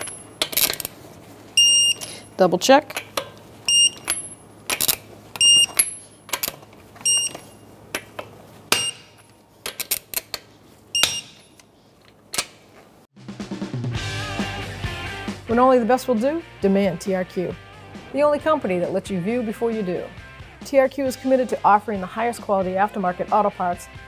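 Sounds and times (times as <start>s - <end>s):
torque wrench beeps: 1.6s - 2.3s, 3.7s - 4.4s, 5.4s - 6.0s, 7.0s - 7.6s, 8.7s - 9.2s, 11.0s - 11.4s.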